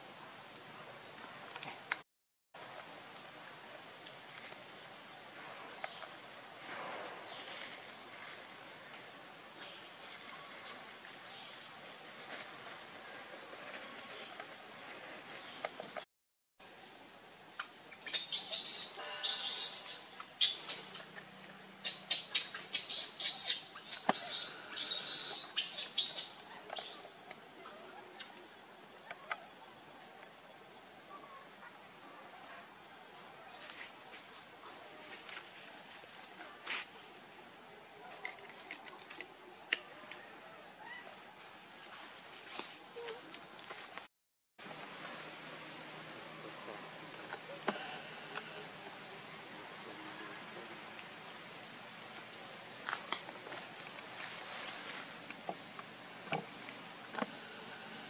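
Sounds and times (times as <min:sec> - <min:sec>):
insects droning: 0:02.6 - 0:58.0.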